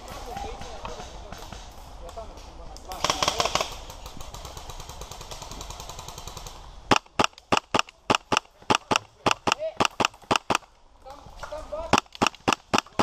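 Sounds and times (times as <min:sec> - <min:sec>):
airsoft gun shots: 0:06.9 - 0:10.7, 0:11.9 - 0:13.0.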